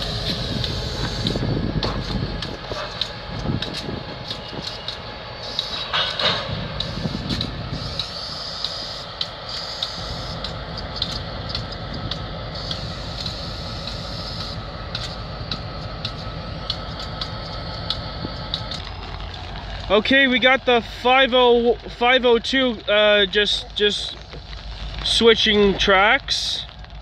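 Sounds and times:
distant locomotive rumble: 0:00.0 - 0:27.0
sharp clicks and knocks: 0:00.3 - 0:19.6.

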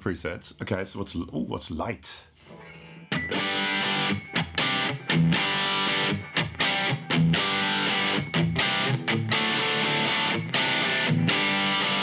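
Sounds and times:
distorted electric guitar chords: 0:02.4 - 0:12.0.

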